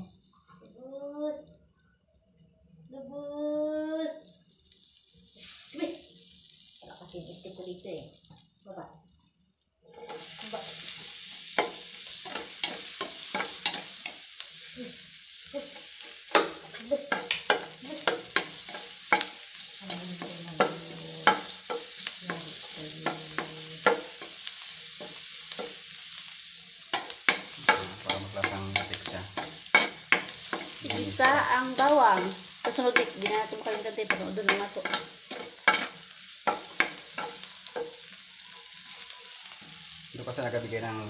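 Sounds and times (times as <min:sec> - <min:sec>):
garlic sizzling in a wok: 0:03.7 - 0:41.0
spatula scraping a pan: 0:09.9 - 0:14.8, 0:15.7 - 0:40.0.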